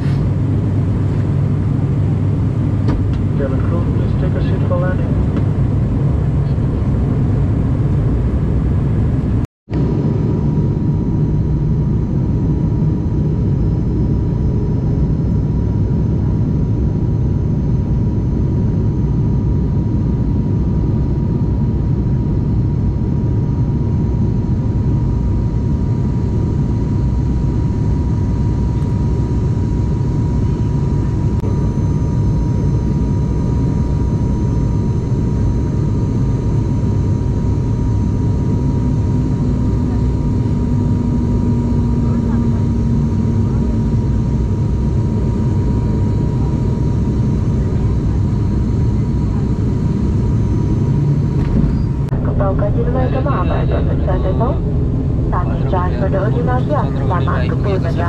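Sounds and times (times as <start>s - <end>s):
thin steady whine: 0.0s - 7.1s, 19.1s - 58.0s
airliner cabin drone: 0.0s - 58.0s.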